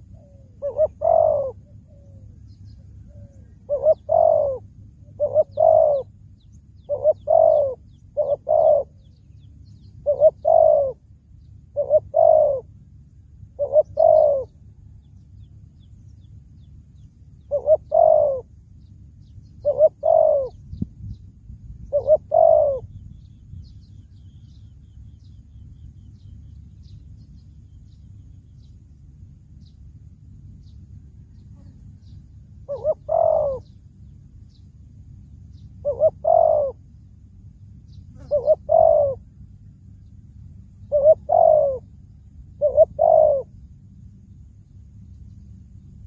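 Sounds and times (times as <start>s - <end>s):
dove cooing: 0.0s - 6.2s, 6.8s - 9.2s, 9.9s - 11.0s, 11.7s - 12.9s, 13.5s - 14.6s, 17.4s - 18.5s, 19.6s - 20.8s, 21.8s - 23.0s, 31.3s - 33.8s, 35.8s - 36.9s, 38.1s - 39.5s, 40.8s - 43.6s
low background noise: 0.0s - 46.0s.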